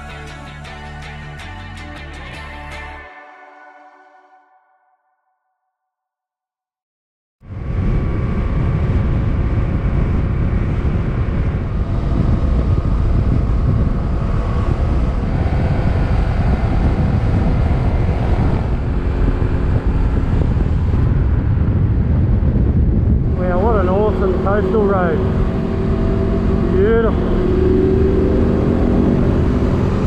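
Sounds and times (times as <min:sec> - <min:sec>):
wind noise on microphone: 0:07.4 - 0:30.0
motorcycle engine running: 0:07.6 - 0:30.0.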